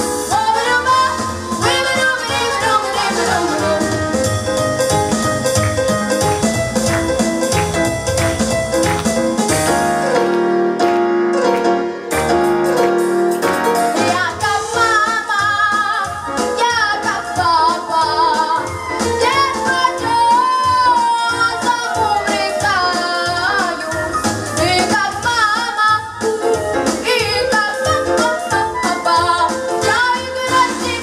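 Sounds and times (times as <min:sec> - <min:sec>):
backing track with piano and bass: 0:00.0 - 0:31.0
woman singing jazz: 0:00.1 - 0:04.4, 0:13.8 - 0:31.0.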